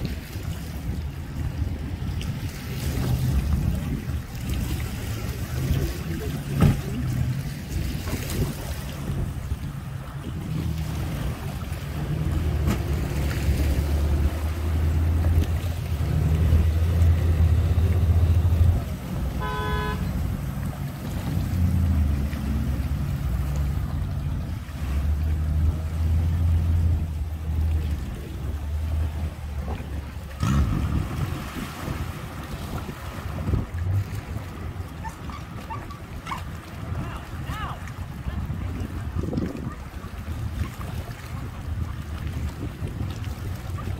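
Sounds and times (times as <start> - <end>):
low engine rumble: 0.0 - 43.9
short horn toot: 19.4 - 20.1.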